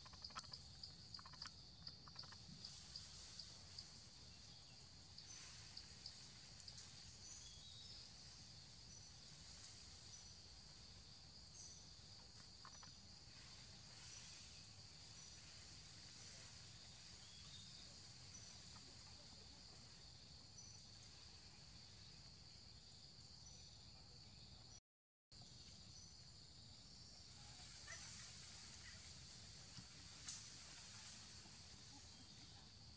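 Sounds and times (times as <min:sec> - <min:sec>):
high-pitched insect buzz: 0:00.0 - 0:03.1.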